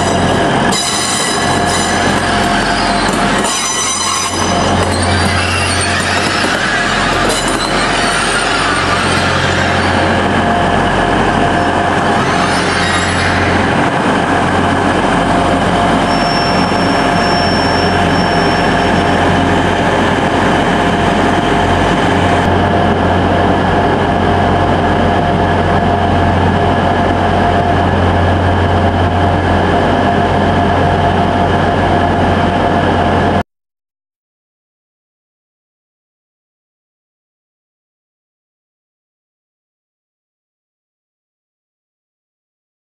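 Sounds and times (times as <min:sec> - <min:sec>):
train engines idling: 0:00.0 - 0:33.3
diesel train engine drone: 0:00.0 - 0:33.4.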